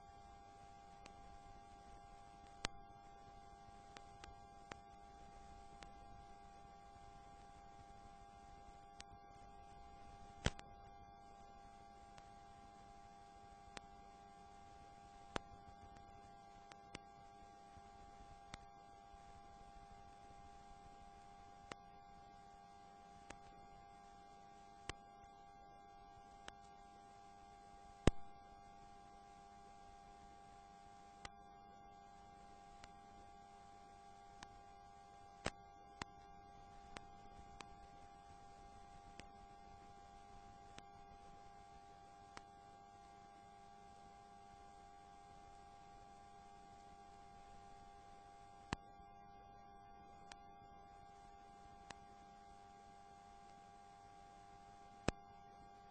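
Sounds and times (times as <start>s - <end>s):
faint electrical hum: 0.0s - 55.9s
sharp clicks: 10.3s - 10.7s, 28.0s - 28.4s
sharp click: 28.0s - 28.3s.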